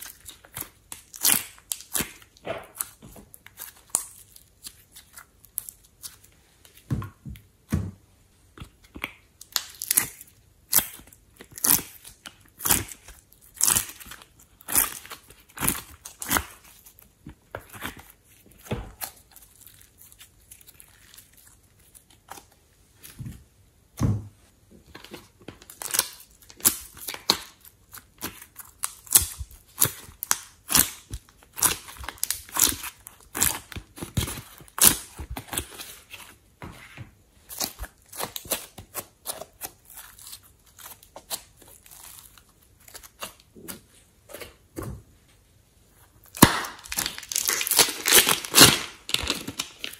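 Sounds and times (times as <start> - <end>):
slime squeezed by hand crackling: 46.2 - 49.9.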